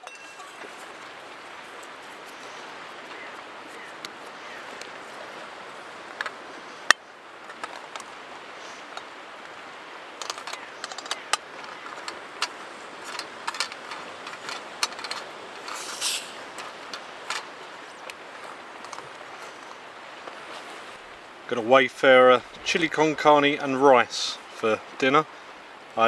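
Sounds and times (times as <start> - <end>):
steady background hiss: 0.0 - 26.0
brief gas hiss: 15.8 - 16.4.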